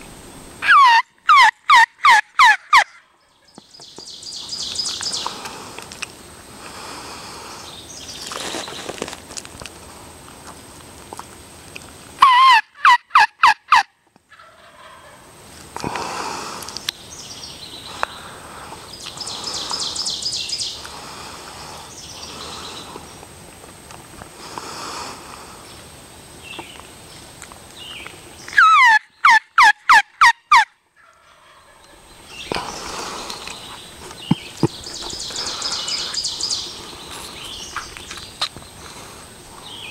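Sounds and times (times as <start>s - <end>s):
turkey gobbling: 0.6s - 3.1s, 12.2s - 15.3s, 28.6s - 32.0s
small birds calling and trilling: 3.0s - 9.2s, 16.6s - 23.3s, 25.3s - 29.3s, 31.0s - 39.9s.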